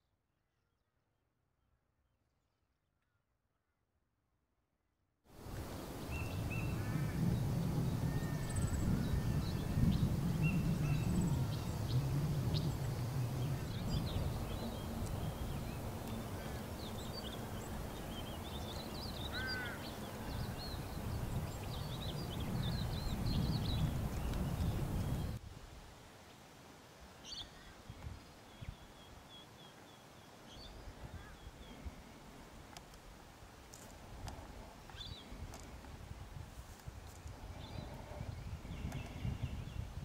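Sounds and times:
small birds chirping: 0:05.6 - 0:25.4, 0:33.7 - 0:35.8, 0:36.7 - 0:40.0
bird rising call: 0:05.9 - 0:25.4
low rumble: 0:06.4 - 0:18.7.

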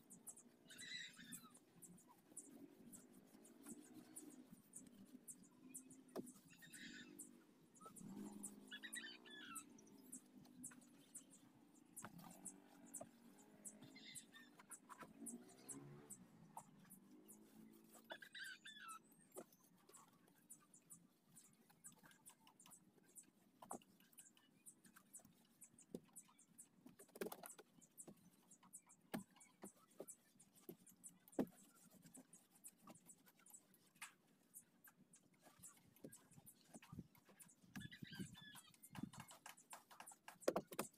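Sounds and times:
faint clicks and ticks: 0:19.1 - 0:40.9.

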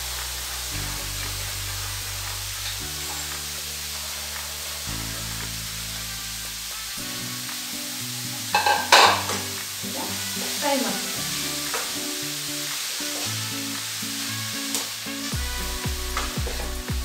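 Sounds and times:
food sizzling in a pan: 0:00.0 - 0:17.0
soft background music: 0:00.0 - 0:17.0
spoon stirring: 0:08.6 - 0:09.5.

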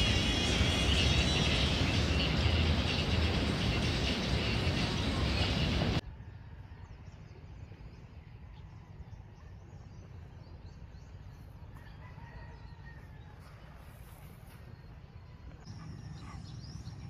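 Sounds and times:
small birds chirping: 0:00.0 - 0:06.0, 0:15.6 - 0:17.0.

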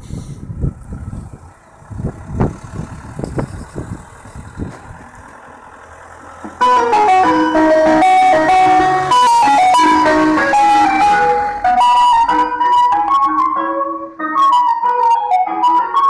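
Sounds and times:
van engine humming: 0:00.0 - 0:16.0
ice cream van chime tune: 0:06.6 - 0:16.0.

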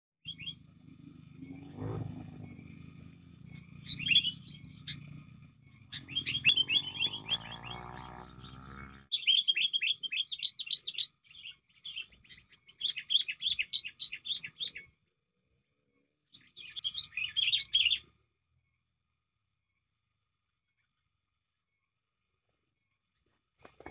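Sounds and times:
bird chattering in sharp chirps: 0:00.3 - 0:14.9, 0:16.3 - 0:18.1.

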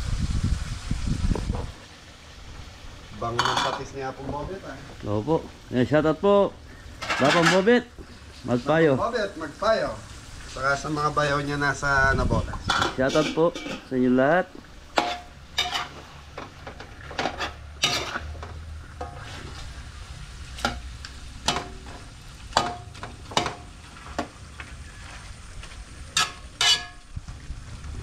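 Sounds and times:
chicken sizzling in a pot: 0:00.0 - 0:28.0
metal ladle clanking on pot: 0:12.6 - 0:13.9, 0:14.9 - 0:19.2, 0:21.4 - 0:24.3, 0:26.2 - 0:27.0.

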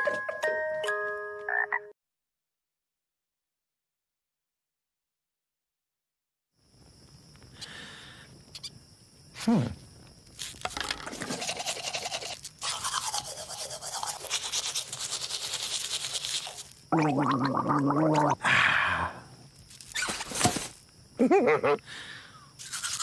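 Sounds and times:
toothbrush scrubbing teeth: 0:11.1 - 0:17.5, 0:22.6 - 0:23.0
gargling: 0:16.9 - 0:18.5.

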